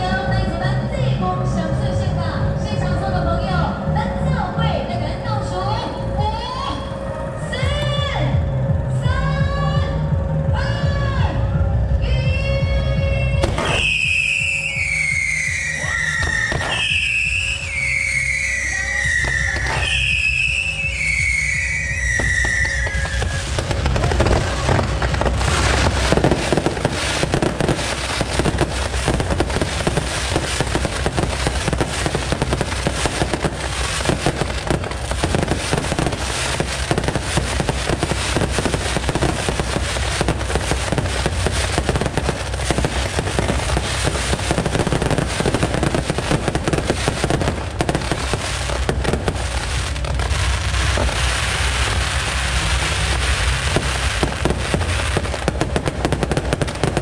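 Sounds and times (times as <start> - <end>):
fireworks launching and bursting: 13.4 - 57.0.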